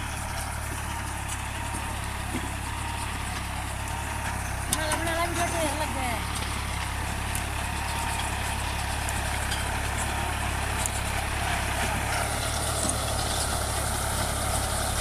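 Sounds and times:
tractor engine under load: 0:00.0 - 0:15.0.

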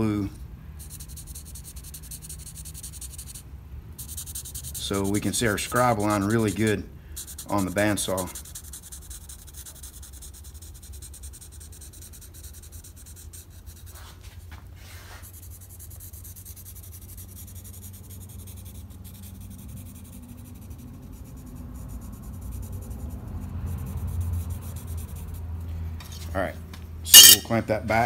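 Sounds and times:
steady low hum: 0:00.0 - 0:13.9
marker scratching on steel plate: 0:00.8 - 0:26.3, 0:27.1 - 0:27.6.

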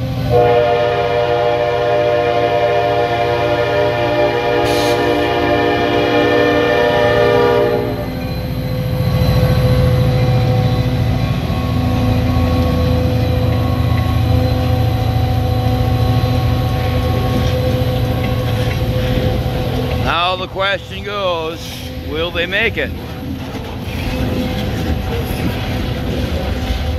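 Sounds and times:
train wheels rolling on rails: 0:00.0 - 0:26.9
locomotive horn: 0:00.2 - 0:08.2, 0:11.4 - 0:22.3.

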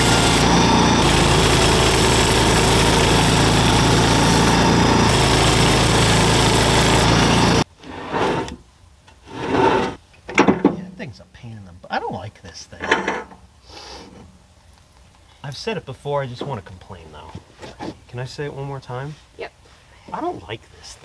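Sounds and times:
bandsaw mill sawing log: 0:00.0 - 0:08.6.

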